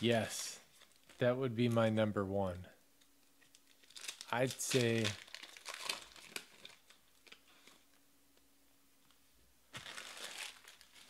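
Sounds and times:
plastic wrapper crinkling and tearing: 0:00.7 - 0:01.2, 0:03.4 - 0:08.0, 0:09.7 - 0:11.0.

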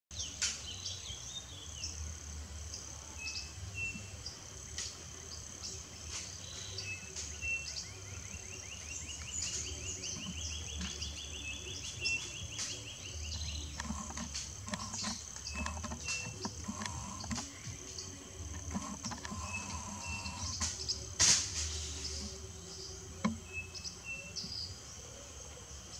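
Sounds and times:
high-pitched insect drone: 0:05.2 - 0:24.8
sharp clicks and rustles: 0:12.6 - 0:22.5.

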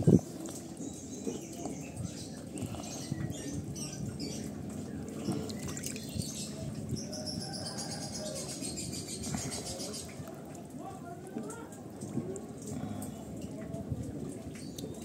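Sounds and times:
wet clicks and water splashes: 0:04.7 - 0:06.2, 0:10.0 - 0:15.0.

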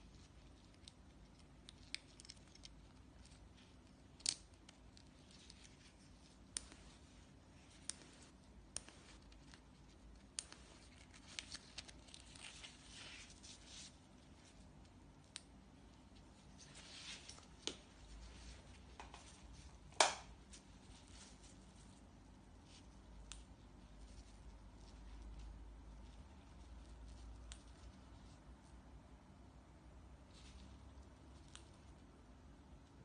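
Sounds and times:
nylon webbing rustling: 0:05.0 - 0:14.9, 0:16.0 - 0:23.0.

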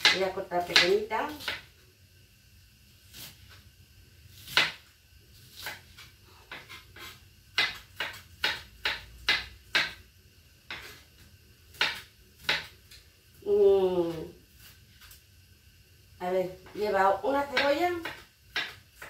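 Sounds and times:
knife chopping on cutting board: 0:00.0 - 0:01.7, 0:04.4 - 0:10.0, 0:10.6 - 0:11.0, 0:11.7 - 0:12.8, 0:17.5 - 0:19.0.

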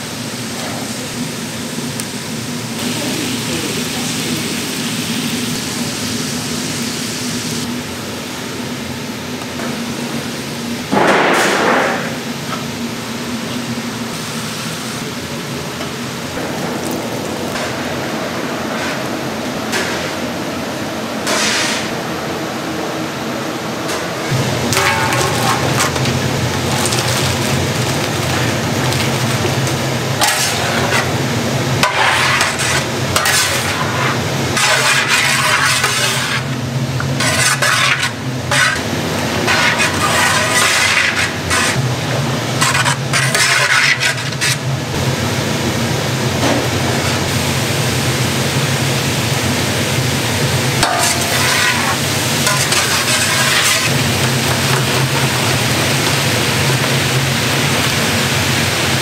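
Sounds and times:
food sizzling in a pan: 0:00.1 - 0:07.7, 0:24.3 - 0:41.8, 0:47.0 - 0:59.0
metal utensils scraping and clinking: 0:24.7 - 0:29.6, 0:30.2 - 0:31.2, 0:31.8 - 0:36.5, 0:37.1 - 0:41.8, 0:42.6 - 0:44.6, 0:50.8 - 0:55.4.

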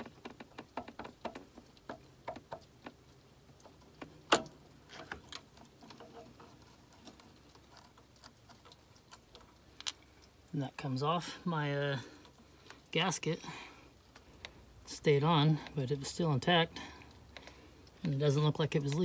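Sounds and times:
vacuum pump clicking and knocking: 0:00.0 - 0:05.8.

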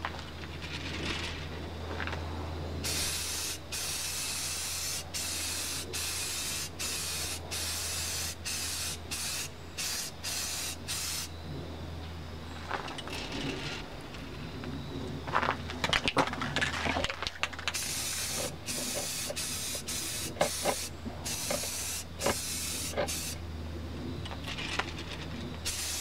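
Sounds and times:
spray paint hissing: 0:02.8 - 0:11.3, 0:17.7 - 0:23.4, 0:25.6 - 0:26.0.

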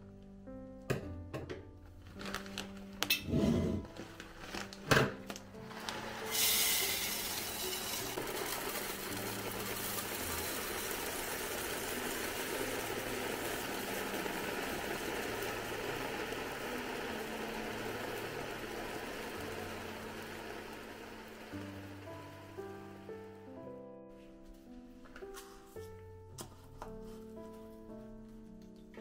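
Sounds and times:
rice pouring into glass jar: 0:05.6 - 0:22.0.

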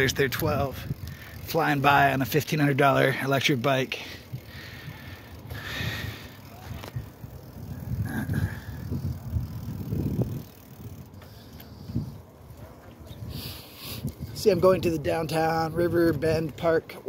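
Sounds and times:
wind on microphone: 0:00.0 - 0:01.5, 0:04.3 - 0:16.4
bicycle tyres rumbling on pavement: 0:00.0 - 0:17.0.

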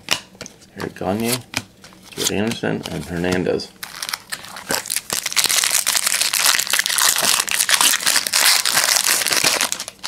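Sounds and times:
foil wrapper crinkling: 0:02.1 - 0:10.0.

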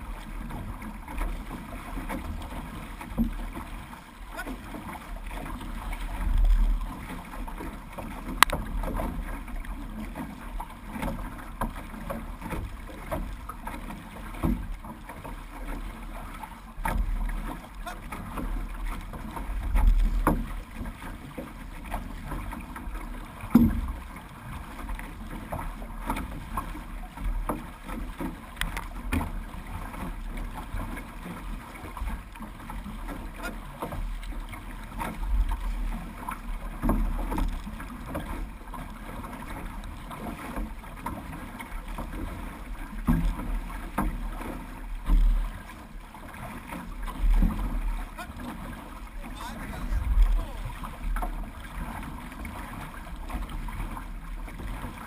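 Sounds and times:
water splashing along canoe hull: 0:00.0 - 0:55.0
low rumble: 0:49.0 - 0:51.0.

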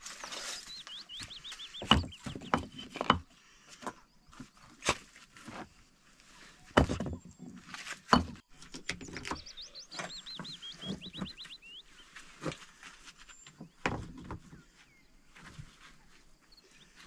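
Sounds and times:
small bird chirping: 0:00.0 - 0:03.0, 0:08.6 - 0:12.2
irregular knocks and clunks: 0:01.8 - 0:04.0, 0:06.8 - 0:07.4, 0:08.1 - 0:11.5.

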